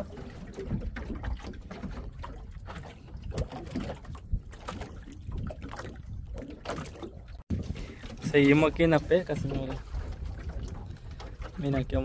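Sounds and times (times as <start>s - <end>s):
splashes: 0.0s - 12.0s
water sloshing: 0.0s - 12.0s
low wind rumble: 7.2s - 12.0s.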